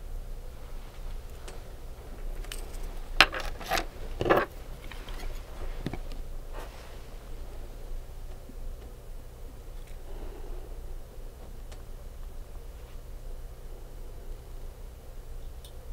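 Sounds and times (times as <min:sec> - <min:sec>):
low hum: 0:00.0 - 0:15.9
manicure tools and bottles clicking: 0:02.3 - 0:06.2.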